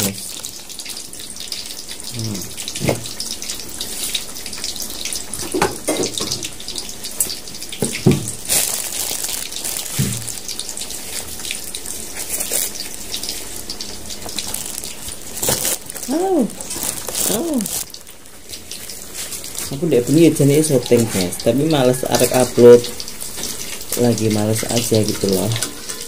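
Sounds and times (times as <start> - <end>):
leaf food wrappers rustling: 0.0 - 1.7, 7.1 - 26.0.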